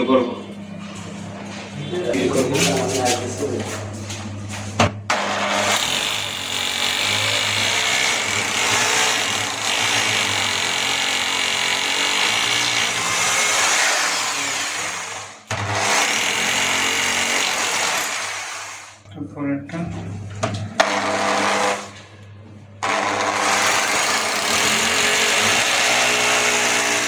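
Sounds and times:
hammer drill boring into tile: 5.1 - 19.0, 20.8 - 21.9, 22.8 - 27.0.

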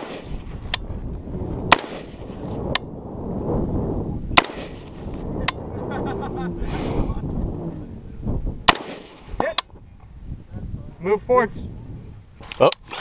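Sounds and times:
rifle shots: 0.0 - 0.8, 1.6 - 2.8, 4.3 - 5.1, 8.6 - 9.4.

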